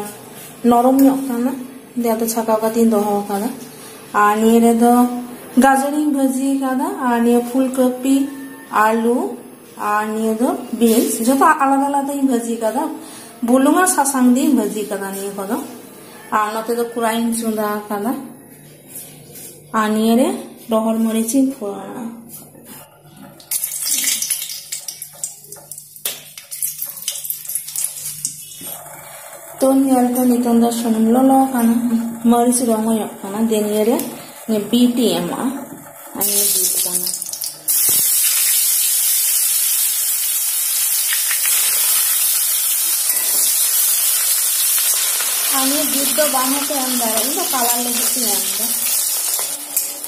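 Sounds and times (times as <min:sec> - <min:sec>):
hot oil sizzling and spluttering: 0:23.4 - 0:28.6, 0:36.2 - 0:50.0.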